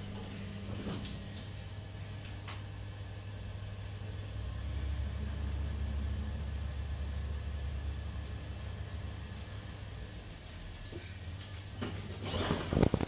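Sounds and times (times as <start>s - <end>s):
elevator hum: 0.0s - 13.0s
elevator car rumbling: 11.2s - 13.0s.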